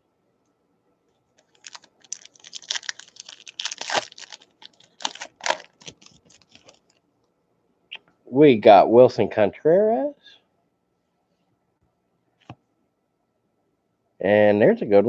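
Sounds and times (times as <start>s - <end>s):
cards being shuffled: 1.4s - 7.0s
foil wrapper crinkling and tearing: 1.4s - 7.0s.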